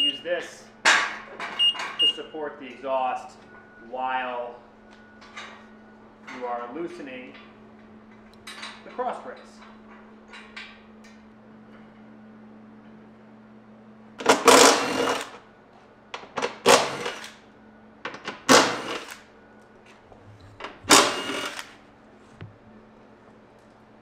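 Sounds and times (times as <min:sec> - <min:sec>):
power tool rattling on bolts: 0:14.2 - 0:15.4, 0:16.4 - 0:17.3, 0:18.3 - 0:19.2, 0:20.6 - 0:21.8.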